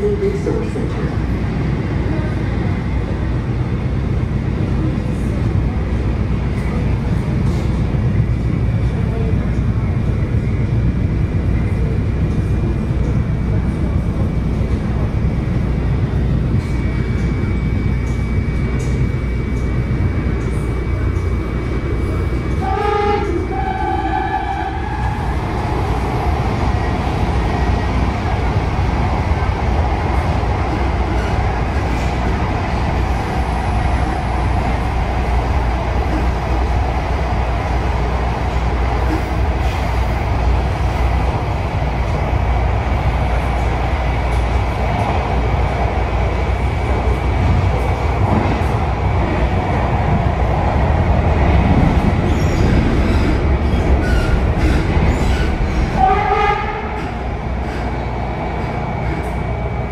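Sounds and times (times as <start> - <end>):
train rumbling along track: 0.0 - 59.9.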